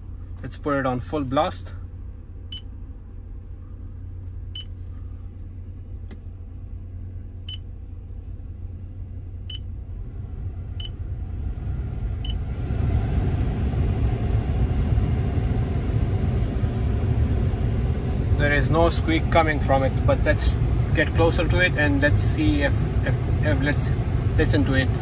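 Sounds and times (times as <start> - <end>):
engine idling low: 0.0 - 25.0
blower motor rushing air: 9.3 - 25.0.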